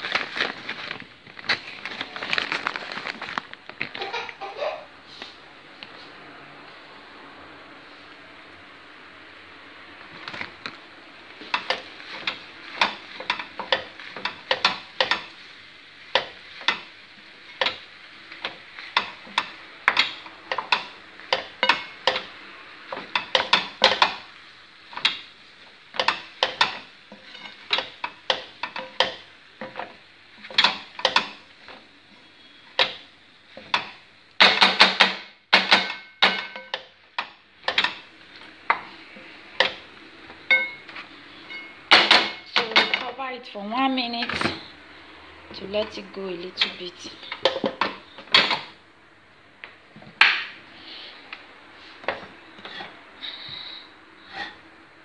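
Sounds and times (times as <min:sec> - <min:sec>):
utensil scraping pasta in a pan: 0:11.4 - 0:34.0, 0:51.8 - 0:54.7.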